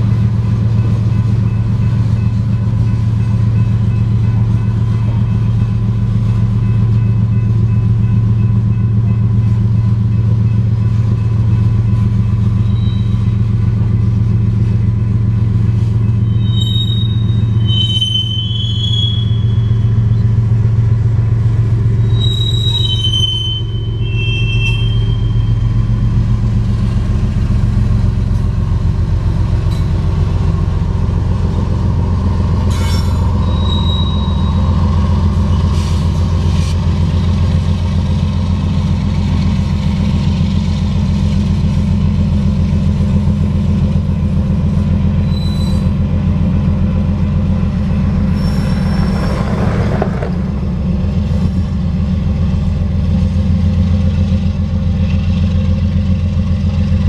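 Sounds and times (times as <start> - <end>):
freight train rumbling past: 0.0 - 57.0
high wheel squeals: 12.5 - 13.5, 16.0 - 20.3, 21.8 - 26.0, 32.5 - 36.6, 45.0 - 46.2, 48.0 - 51.7.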